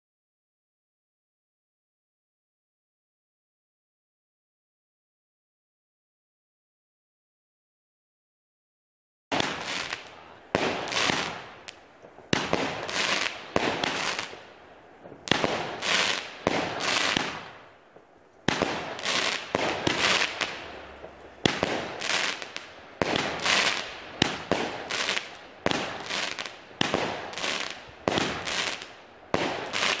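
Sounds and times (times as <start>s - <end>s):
fireworks bangs and pops: 9.3s - 30.0s.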